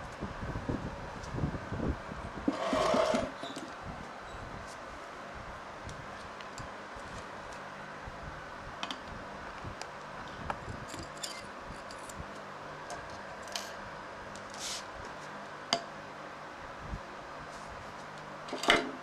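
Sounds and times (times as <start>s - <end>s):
low background hum: 0.0s - 19.0s
short scrape: 2.5s - 3.4s, 14.6s - 14.9s.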